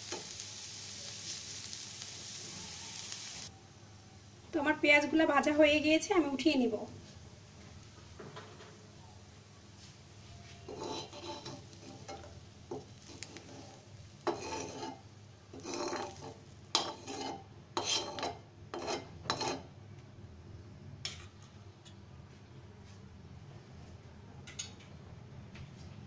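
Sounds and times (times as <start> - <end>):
spatula scraping frying pan: 10.4 - 19.8.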